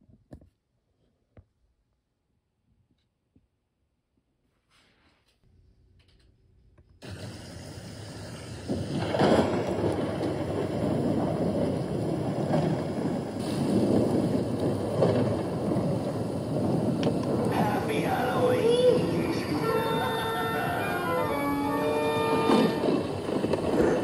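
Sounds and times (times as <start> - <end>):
rain hiss: 7.0 - 24.0
rolling thunder: 7.0 - 24.0.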